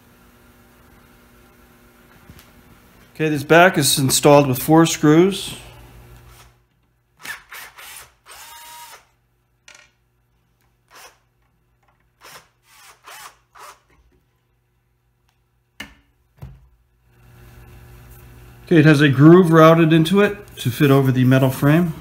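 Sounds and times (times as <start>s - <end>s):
cordless drill whining: 7.2s - 9.1s, 12.2s - 13.9s.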